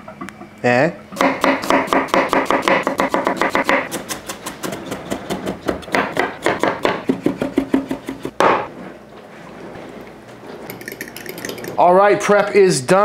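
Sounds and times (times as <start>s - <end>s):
knife chopping on wooden board: 1.2s - 8.7s.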